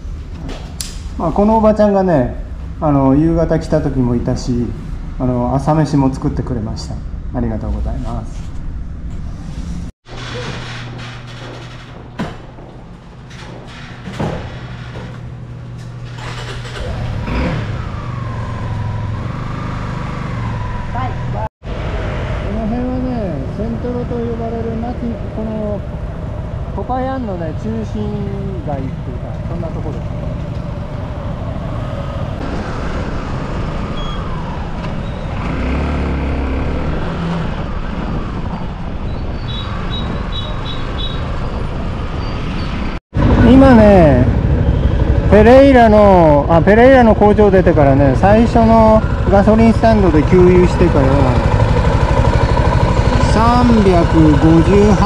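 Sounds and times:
deep engine rumble: 0.0s - 55.0s
wind and road noise: 0.0s - 55.0s
metal garage door rising: 10.0s - 18.8s
motorcycle engine idling: 43.2s - 55.0s.

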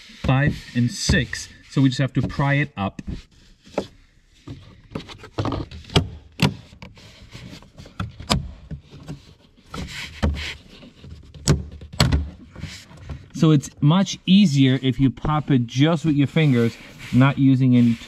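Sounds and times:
plastic creaking and rubbing: 0.0s - 13.6s.

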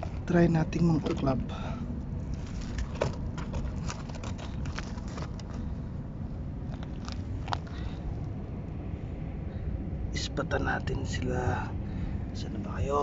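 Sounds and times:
gravel clicking and scraping: 0.0s - 6.0s, 6.6s - 8.0s
low rumble: 0.0s - 13.0s.

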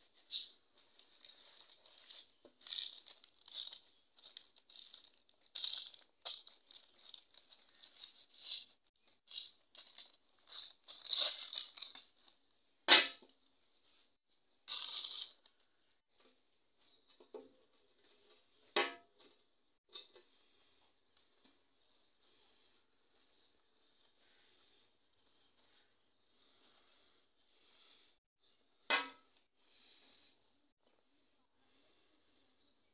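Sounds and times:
plastic wrapping crinkling: 0.1s - 12.4s, 14.7s - 15.7s.

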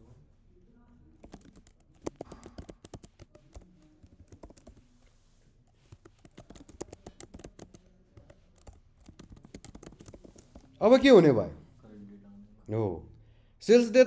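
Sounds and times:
keyboard typing: 1.1s - 11.0s.

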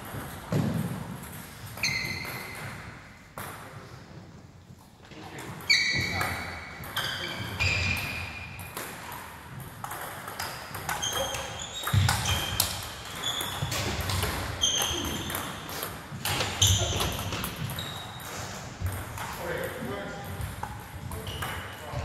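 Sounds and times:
table tennis balls pinging: 0.0s - 4.1s, 5.3s - 22.0s.

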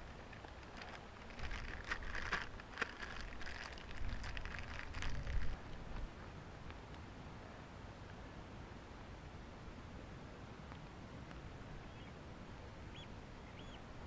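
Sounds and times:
dry grass rustling and crackling: 0.0s - 6.2s.

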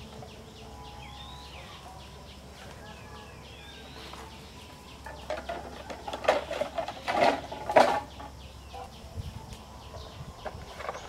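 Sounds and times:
birds chirping: 0.0s - 11.0s
bamboo poles clattering: 3.8s - 8.9s, 9.5s - 11.0s.

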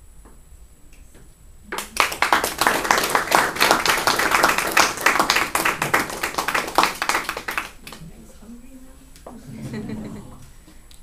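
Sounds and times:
people applauding: 1.7s - 8.1s.

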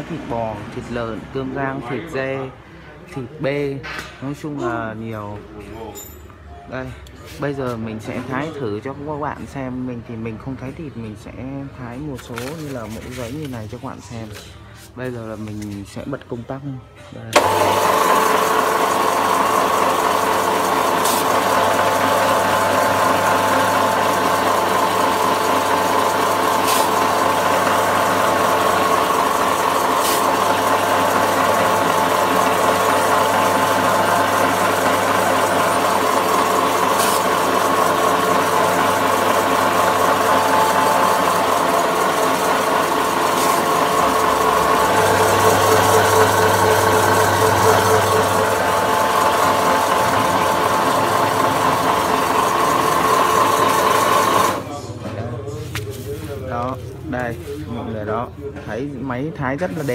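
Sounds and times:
electric slicer motor hum: 17.4s - 54.8s.

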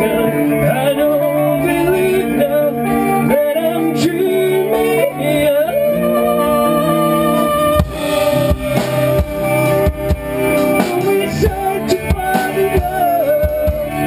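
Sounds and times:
rock band playing live: 0.0s - 14.0s
drum hits: 7.8s - 14.0s.

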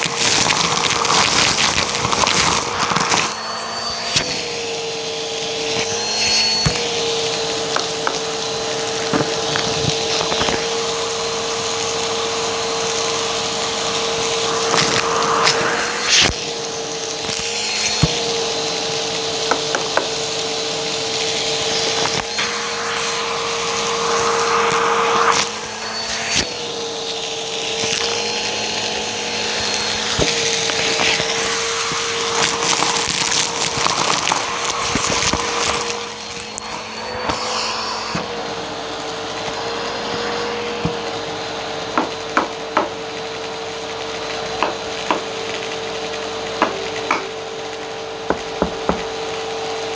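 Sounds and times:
debris rattling up vacuum hose: 0.0s - 16.3s, 27.3s - 48.5s
vacuum cleaner motor whine: 0.0s - 49.9s.

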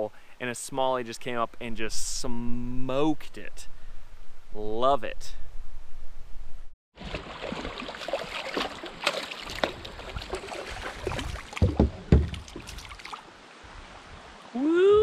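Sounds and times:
fish splashing at water surface: 7.0s - 13.3s
heavy thumps: 11.6s - 12.7s.

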